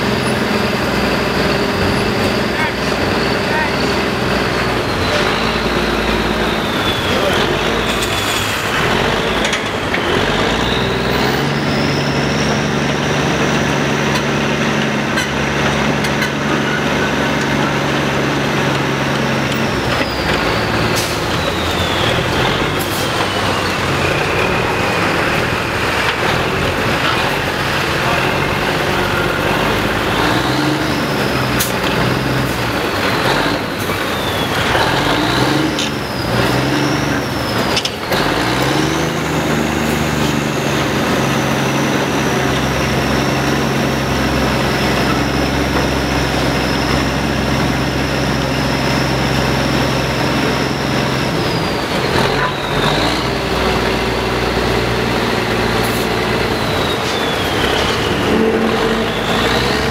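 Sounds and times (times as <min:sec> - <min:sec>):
crane diesel engine drone: 0:00.0 - 0:59.9.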